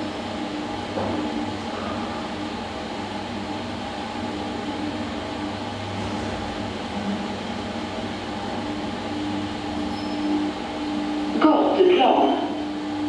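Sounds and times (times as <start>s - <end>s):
elevator car humming: 0.0s - 13.0s
low machinery drone: 0.0s - 13.0s
elevator doors sliding open: 5.0s - 10.7s.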